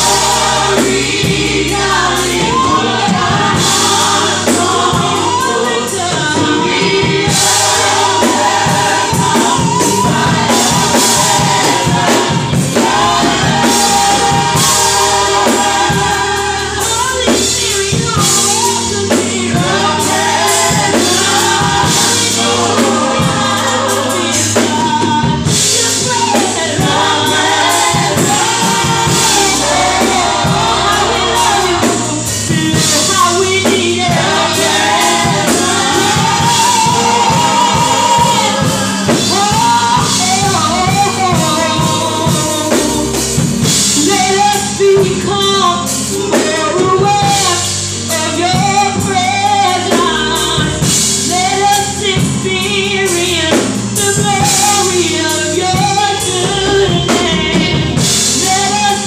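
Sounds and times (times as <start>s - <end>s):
steady beat: 0.0s - 44.4s
choir singing gospel: 0.0s - 59.0s.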